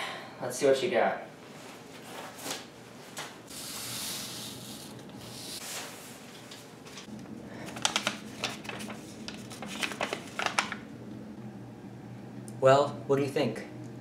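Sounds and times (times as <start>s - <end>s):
paper sliding across wooden table: 3.5s - 6.1s
paper crackling and rustling: 5.6s - 10.9s.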